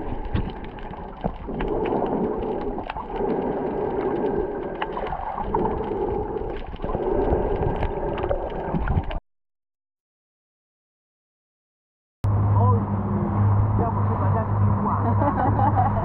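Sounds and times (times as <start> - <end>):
muffled underwater rush: 0.0 - 9.2.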